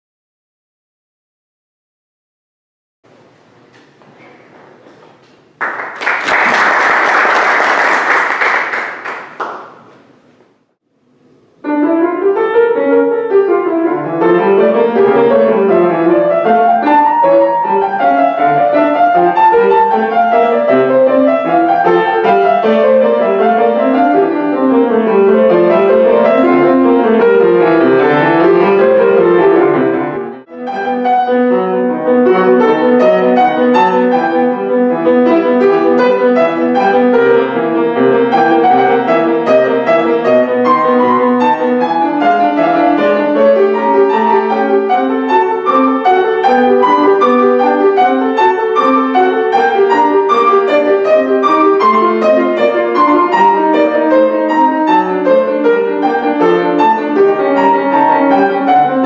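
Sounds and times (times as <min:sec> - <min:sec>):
applause: 0:05.0 - 0:10.0
solo piano arpeggios: 0:11.6 - 0:59.0.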